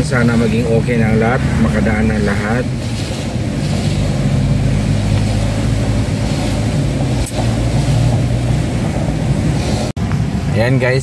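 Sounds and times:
car engine and road drone: 0.0s - 11.0s
tyre hiss on wet road: 2.2s - 10.0s.

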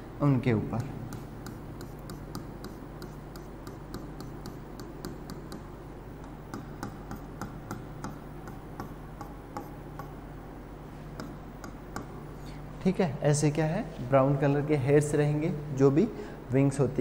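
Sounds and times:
steady low hum: 0.0s - 17.0s
marker scratching on whiteboard: 1.1s - 4.6s.

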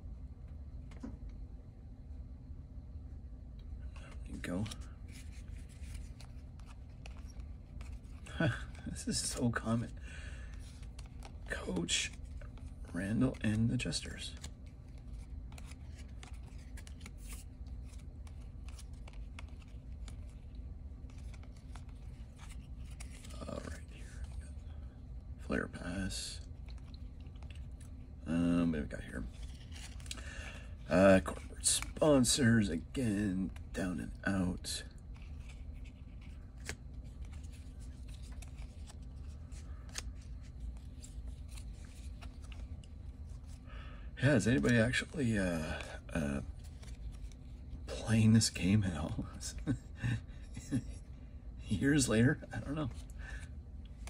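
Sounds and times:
low steady hum: 0.0s - 54.0s
cards clicking and sliding: 3.9s - 24.4s, 29.2s - 30.3s, 31.3s - 32.4s, 35.1s - 43.6s, 46.6s - 47.6s.

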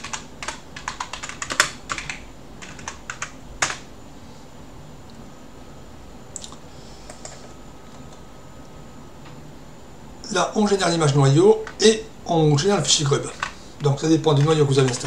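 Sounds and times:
keyboard typing: 0.0s - 3.9s, 7.1s - 8.2s, 13.1s - 15.0s.

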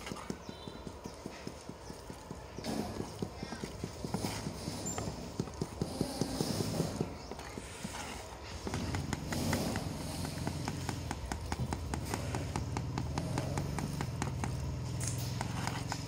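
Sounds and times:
hammer striking steel chisel: 4.1s - 16.0s.

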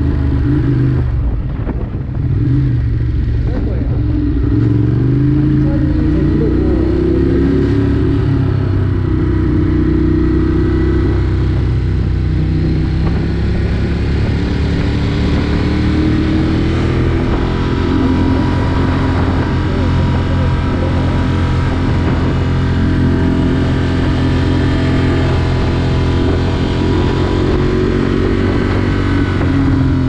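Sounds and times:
vehicle engine rumbling: 0.0s - 30.0s.

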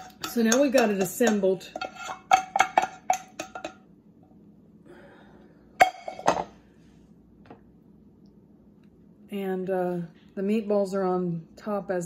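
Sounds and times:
spatula scraping a pot: 0.0s - 3.8s.

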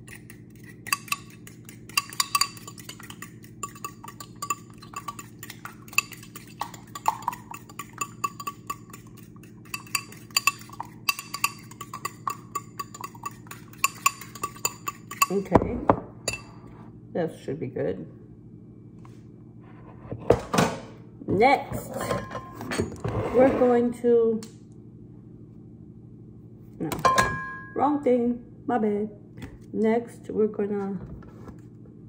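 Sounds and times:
eggs beaten in ceramic bowl: 0.0s - 15.7s.

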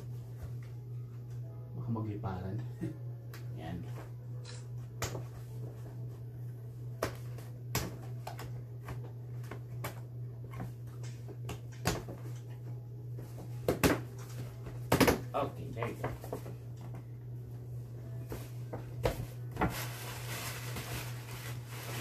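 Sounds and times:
steady low hum: 0.0s - 22.0s
paper bag and tissue rustling: 18.2s - 22.0s.

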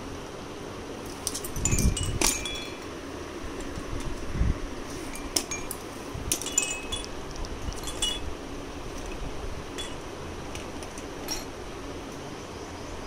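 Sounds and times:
toy chime tinkling: 1.5s - 2.9s, 6.4s - 8.3s.

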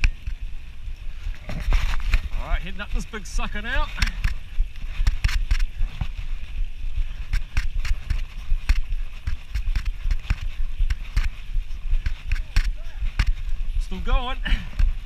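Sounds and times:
bike knocks and rattles: 0.0s - 0.5s, 3.6s - 6.3s, 7.0s - 13.8s.

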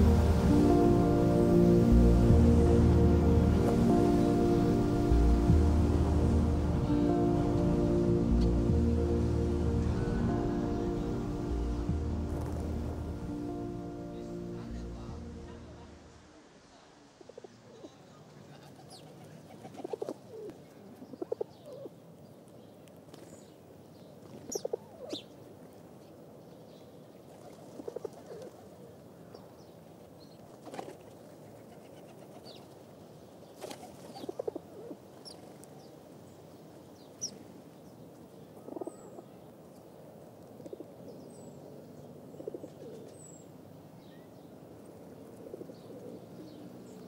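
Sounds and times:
small birds chirping: 17.5s - 28.5s, 32.4s - 47.0s
pigeons cooing: 19.5s - 21.9s, 33.6s - 35.0s, 38.6s - 39.3s, 42.4s - 43.2s, 45.2s - 46.6s.

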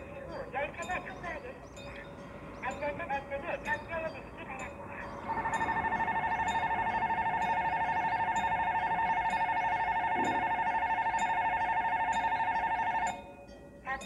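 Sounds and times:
railroad crossing bell ringing: 0.0s - 14.0s.

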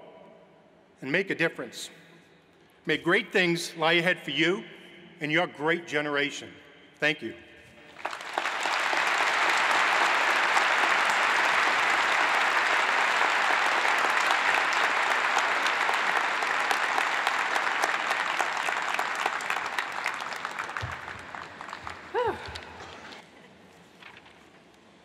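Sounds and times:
large audience applauding: 7.9s - 23.2s.

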